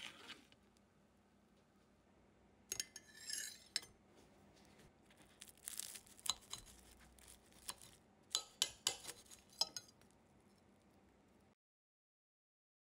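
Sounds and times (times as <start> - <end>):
cutlery scraping: 2.7 - 3.9, 5.7 - 10.0
cutlery clinking against dishes: 8.3 - 9.9.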